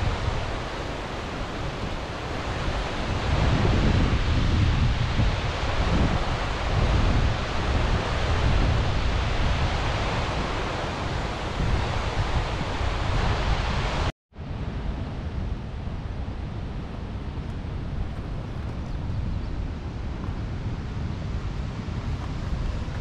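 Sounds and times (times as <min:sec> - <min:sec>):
steady rushing noise: 0:00.0 - 0:23.0
wind rumble on microphone: 0:00.0 - 0:23.0.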